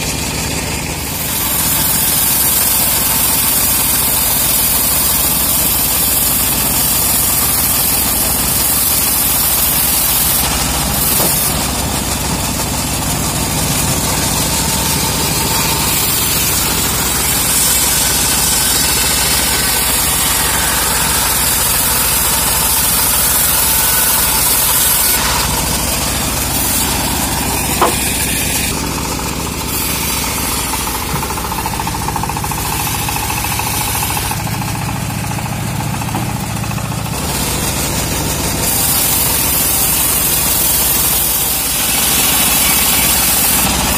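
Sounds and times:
bandsaw blade hissing: 0.0s - 43.9s
diesel engine running: 0.0s - 43.9s
sharp knock: 27.6s - 28.3s.

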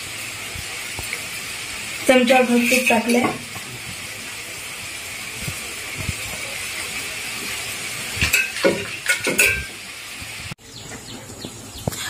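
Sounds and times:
liquid sizzling in a pan: 0.0s - 10.6s
knocks and scrapes against pan: 8.2s - 9.8s.

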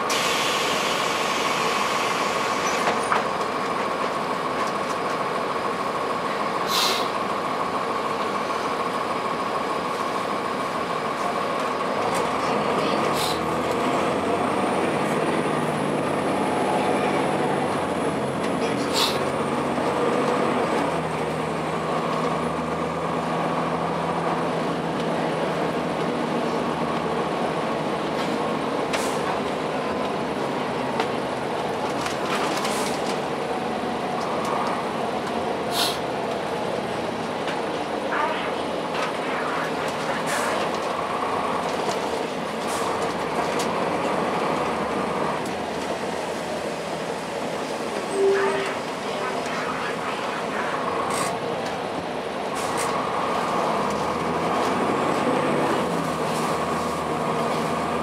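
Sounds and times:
diesel bus engine running: 0.0s - 58.0s
bus body clicks and rattles: 2.6s - 5.2s, 30.8s - 33.3s.

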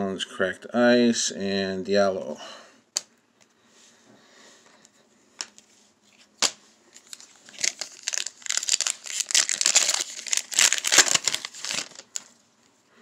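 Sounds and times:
foil wrapper crinkling: 6.4s - 12.4s.

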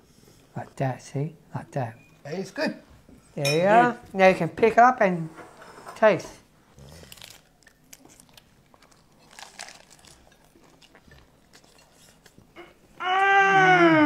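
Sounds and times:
crunching and chewing lettuce: 6.7s - 12.5s
person humming mmm: 12.6s - 14.0s.

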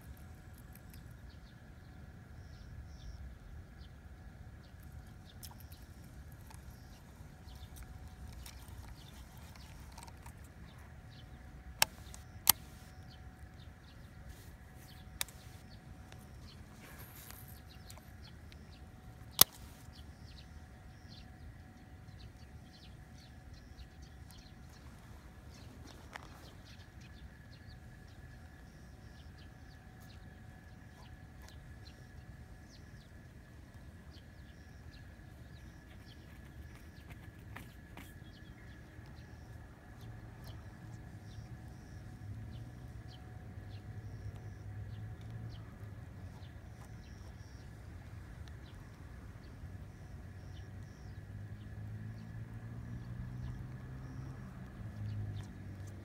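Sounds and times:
low outdoor rumble: 0.0s - 56.0s
sharp clicks: 4.8s - 13.6s, 14.9s - 20.0s.

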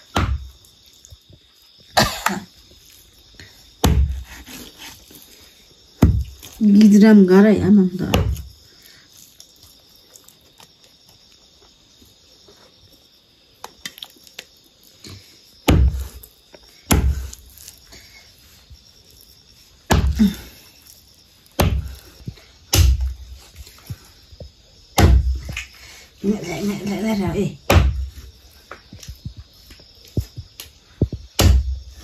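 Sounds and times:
knife chopping on wooden block: 16.9s - 17.2s.

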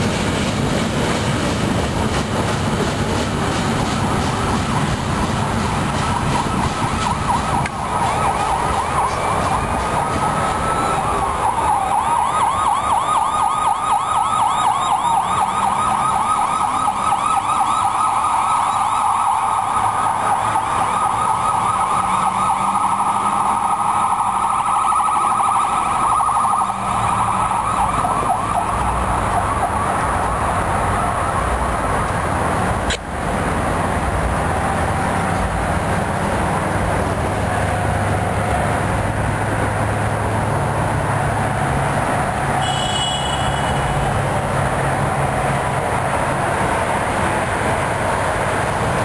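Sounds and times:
police siren yelping: 5.8s - 31.9s.

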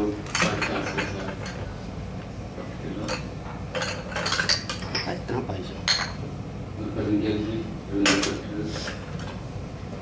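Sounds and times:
low room hum: 0.0s - 10.0s
tableware clinking: 0.3s - 1.7s, 3.0s - 5.2s, 5.8s - 6.2s, 8.0s - 9.4s.

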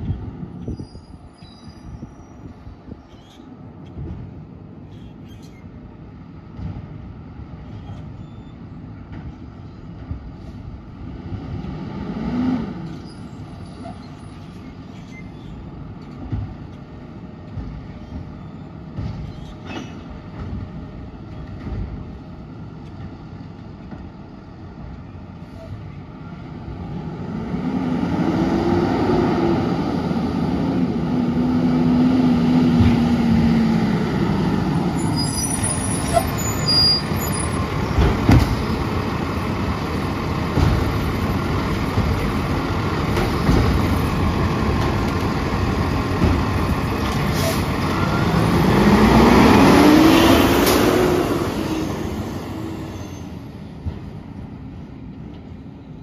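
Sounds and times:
garbage truck engine running: 37.1s - 49.2s
air brakes hissing: 47.2s - 47.7s.

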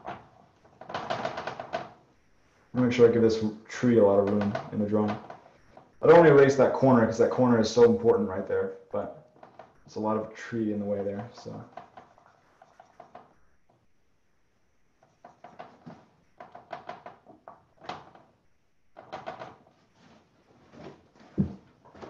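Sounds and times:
drawing strokes on paper: 1.5s - 8.4s, 9.3s - 18.5s.

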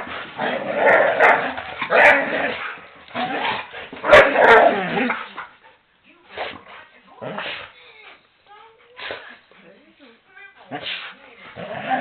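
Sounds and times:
dogs growling: 0.0s - 5.6s, 11.5s - 12.0s
dogs barking: 1.2s - 2.2s, 4.0s - 5.0s.

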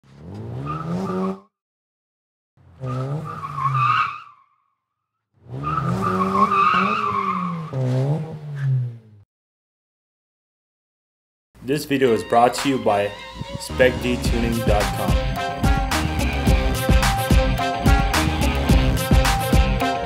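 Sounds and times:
car tyres squealing: 0.0s - 1.5s, 2.6s - 4.7s, 5.4s - 9.2s.

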